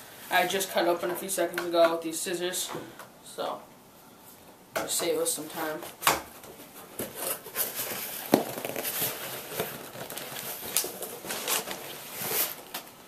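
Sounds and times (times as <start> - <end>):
cardboard crackling and rustling: 6.5 - 13.0.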